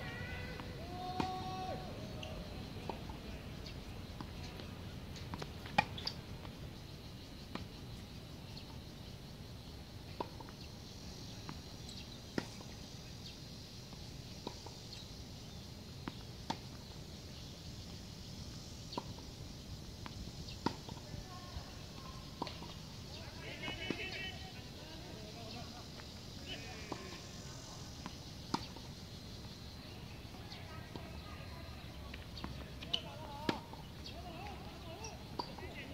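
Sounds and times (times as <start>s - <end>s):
outdoor hiss: 0.0s - 35.9s
tennis ball hit and bouncing: 0.6s - 1.5s, 20.0s - 21.0s, 28.0s - 28.9s, 32.4s - 34.5s, 35.4s - 35.7s.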